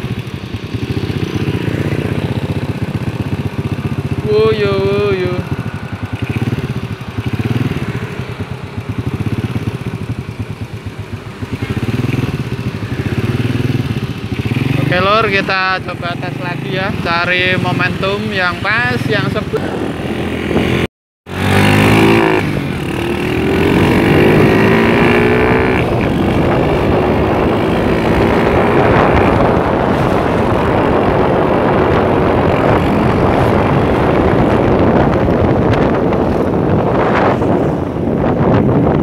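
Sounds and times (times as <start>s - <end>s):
motorcycle engine accelerating: 0.0s - 39.0s
road noise: 0.0s - 39.0s
wind noise: 11.7s - 39.0s.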